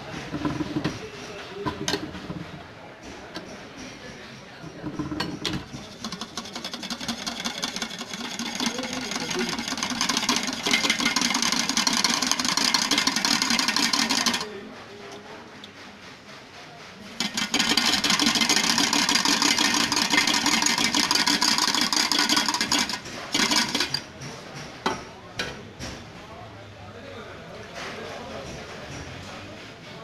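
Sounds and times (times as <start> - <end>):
juicing machine whirring and grinding: 4.8 - 14.6, 17.2 - 24.3.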